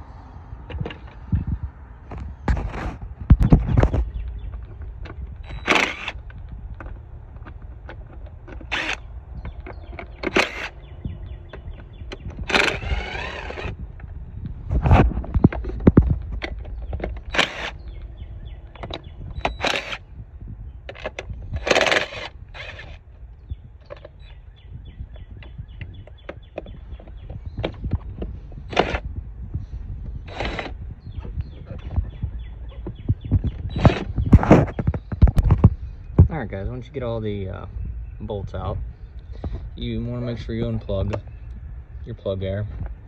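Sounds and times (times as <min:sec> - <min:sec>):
impact driver whining: 0:02.1 - 0:35.7.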